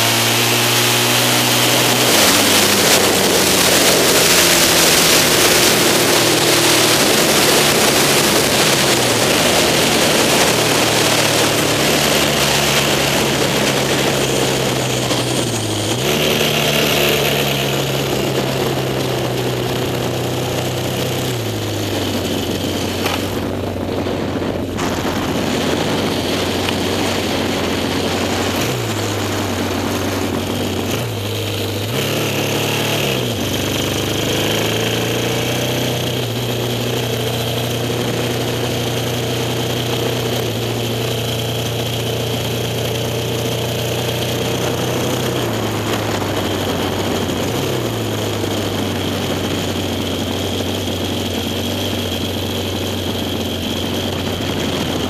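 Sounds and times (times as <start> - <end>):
wind rush: 0.0 - 41.5
motorcycle engine running hard: 0.0 - 55.0.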